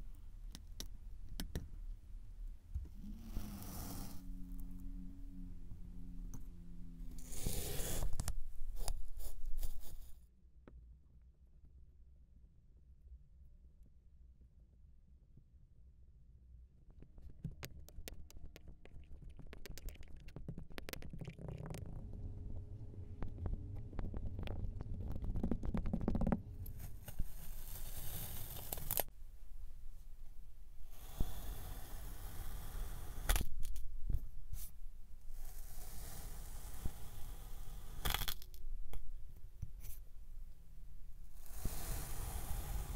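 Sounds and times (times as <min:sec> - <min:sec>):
faint low hum: 0:00.0 - 0:41.5
low rumble: 0:21.5 - 0:26.9
tool sliding under sand: 0:41.4 - 0:42.9.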